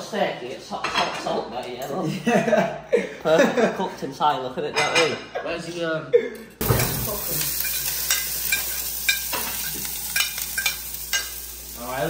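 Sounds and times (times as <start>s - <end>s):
vegetables sizzling in oil: 6.6s - 12.0s
spoon scraping a pan: 6.7s - 11.5s.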